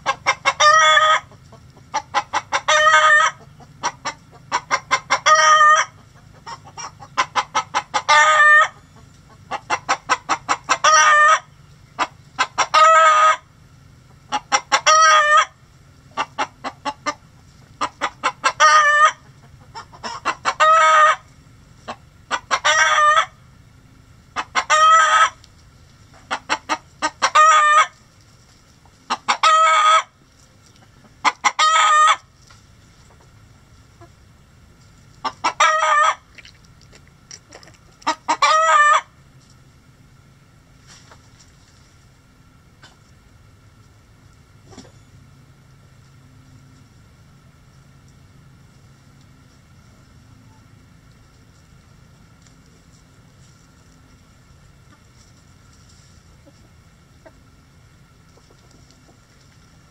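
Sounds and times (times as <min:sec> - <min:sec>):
hen cackling: 0:00.0 - 0:23.5, 0:24.2 - 0:25.5, 0:26.1 - 0:28.0, 0:29.0 - 0:32.3, 0:35.2 - 0:36.5, 0:37.5 - 0:39.2.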